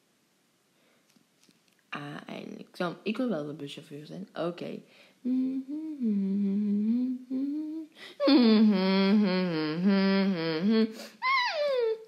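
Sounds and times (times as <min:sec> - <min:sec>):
person humming: 0:05.2 - 0:12.0.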